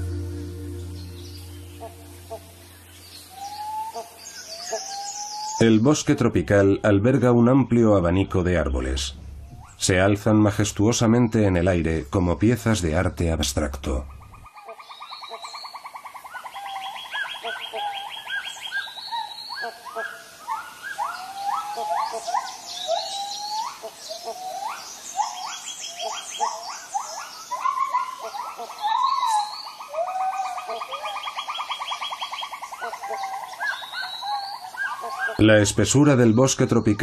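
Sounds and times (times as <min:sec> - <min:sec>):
pulsing trills: 0:00.0 - 0:04.2
birds whistling and chirping: 0:00.0 - 0:05.7, 0:16.3 - 0:37.0.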